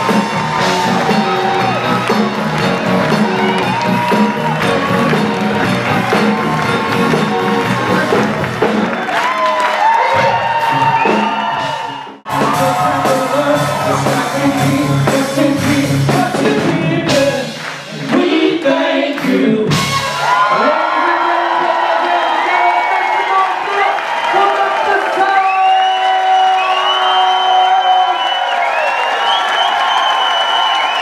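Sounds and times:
crowd cheering and whooping: 0.0 - 14.9, 19.7 - 31.0
live blues band with singing: 12.3 - 20.4.

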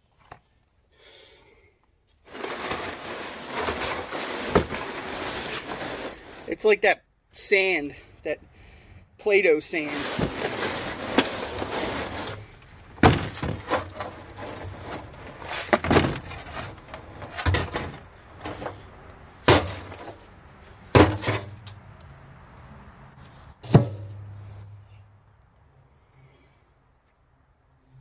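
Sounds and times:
shovel scraping dirt: 2.3 - 6.6, 9.7 - 18.9, 19.5 - 20.2, 21.0 - 21.6.

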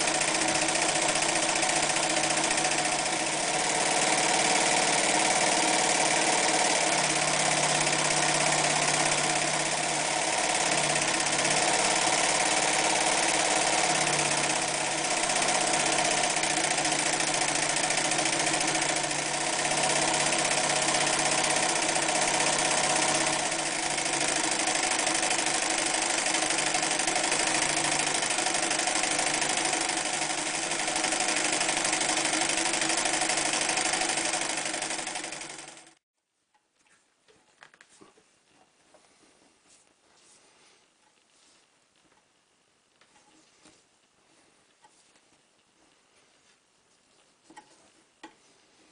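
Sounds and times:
sewing machine running: 0.0 - 36.0.

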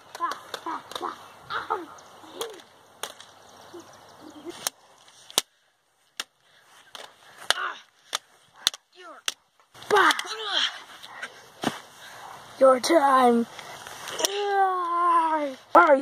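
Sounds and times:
toy lightsabers clacking: 0.0 - 1.2, 6.9 - 10.4.

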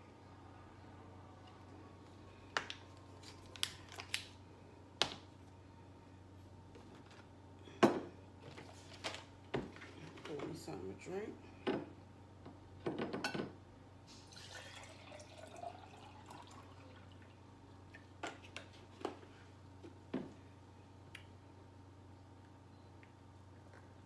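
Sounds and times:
drink pouring into container: 14.3 - 17.4.

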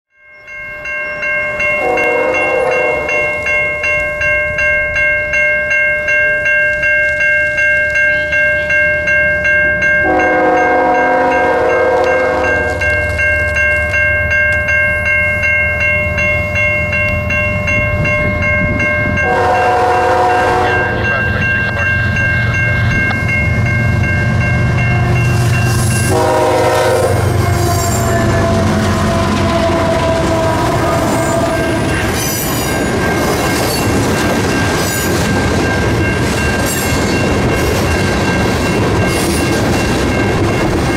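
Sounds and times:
level crossing bell dinging: 0.2 - 28.6
train horn blasts: 1.8 - 3.4, 10.0 - 12.9, 19.2 - 21.5, 26.0 - 32.1
locomotive rumble: 8.2 - 40.9.

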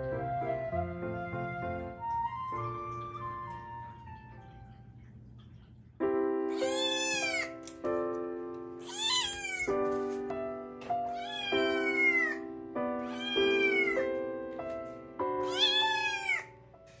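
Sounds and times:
kitten meowing: 6.5 - 7.6, 8.8 - 9.8, 11.1 - 12.4, 13.0 - 14.0, 15.4 - 16.6.

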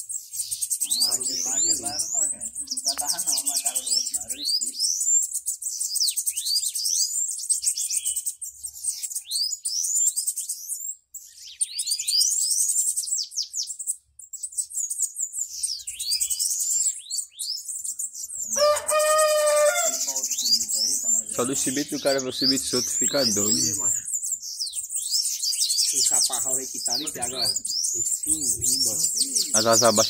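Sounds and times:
birds singing high trills: 0.0 - 30.0
rooster crowing: 18.5 - 20.5.

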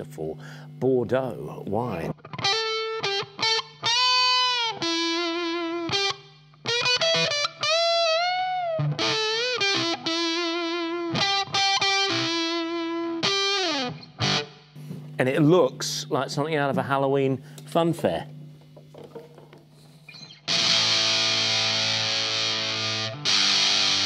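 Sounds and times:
distorted electric guitar lead: 2.1 - 14.6, 19.9 - 24.0.

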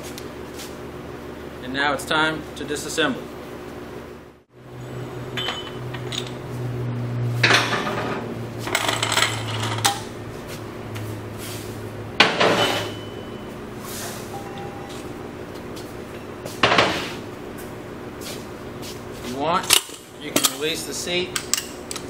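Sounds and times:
steady low hum: 0.0 - 22.0
metal tool parts clanking: 5.4 - 6.4, 7.4 - 10.0, 19.6 - 20.8.

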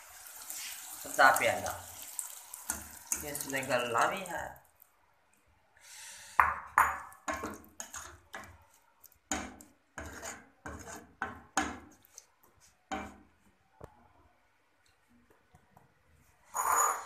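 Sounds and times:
ladle stirring curry in a pot: 0.2 - 5.0, 6.7 - 13.6.

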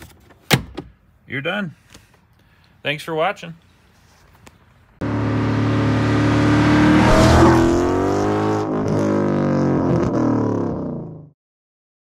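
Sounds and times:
car engine driving past: 5.0 - 9.8.

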